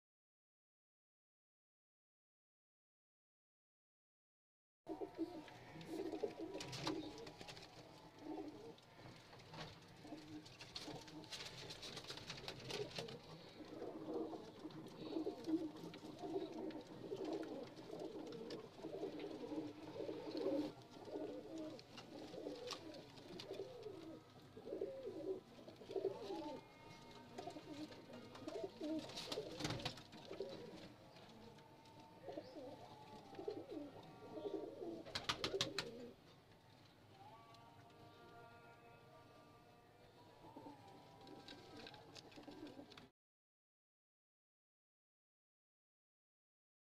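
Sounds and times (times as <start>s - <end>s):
pigeons cooing: 4.9s - 36.3s, 40.1s - 43.1s.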